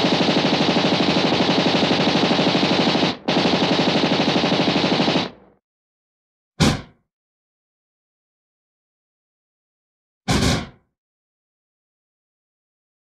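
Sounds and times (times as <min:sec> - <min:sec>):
machine gun automatic fire: 0:00.0 - 0:05.6.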